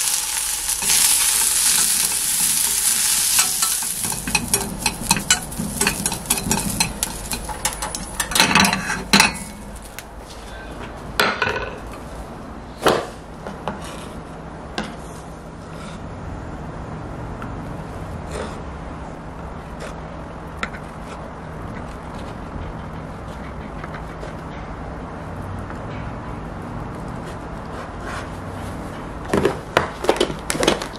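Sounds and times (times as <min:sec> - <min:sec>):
sausages sizzling in frying pan: 0:00.0 - 0:10.2.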